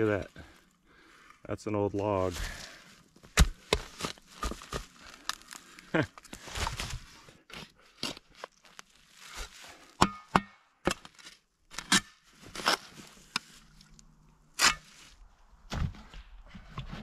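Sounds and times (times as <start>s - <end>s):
spade crunching into soil: 2.3s - 15.2s.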